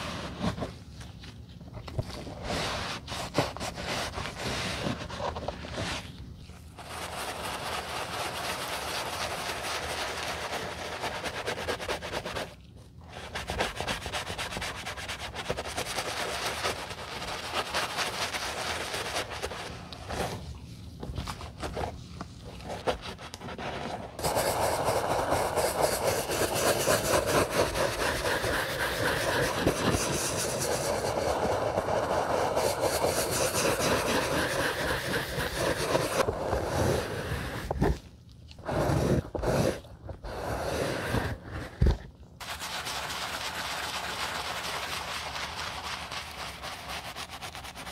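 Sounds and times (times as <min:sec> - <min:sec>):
bristle brush scrubbing wet leather: 0:06.7 - 0:12.6, 0:24.2 - 0:37.6, 0:42.4 - 0:47.9
towel rubbing leather: 0:22.0 - 0:37.7.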